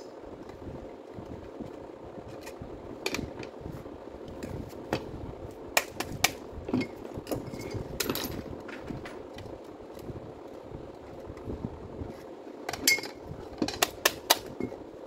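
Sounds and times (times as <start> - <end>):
faint hum: 0.0 - 15.0
tools clicking and knocking: 12.7 - 14.8.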